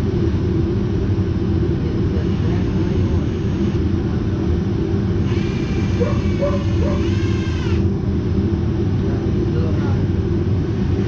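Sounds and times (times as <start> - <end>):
cordless drill driving a screw: 5.2 - 7.9.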